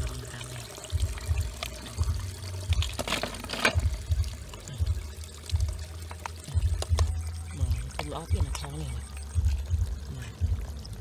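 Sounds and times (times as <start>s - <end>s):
water pouring and splashing: 0.0s - 11.0s
dull low thuds: 3.8s - 10.9s.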